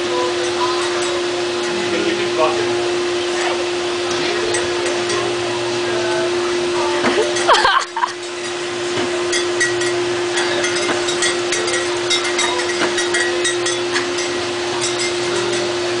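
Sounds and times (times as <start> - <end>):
motor hum: 0.0 - 16.0.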